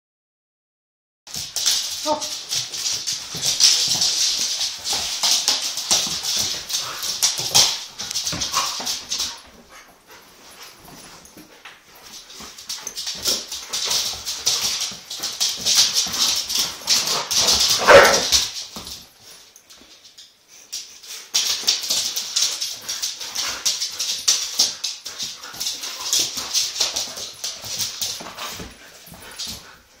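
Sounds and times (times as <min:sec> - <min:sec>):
dog claws scrabbling on wooden floor: 0:01.3 - 0:09.8.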